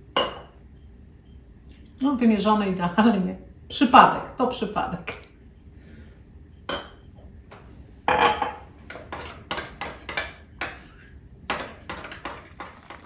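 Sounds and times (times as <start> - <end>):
spoon knocking glass: 6.7 - 7.0.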